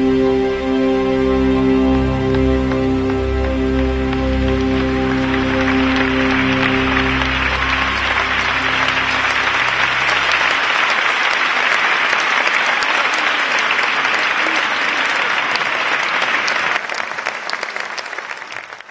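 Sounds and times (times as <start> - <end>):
music held notes: 0.0 - 11.5
audience applauding: 1.9 - 18.9.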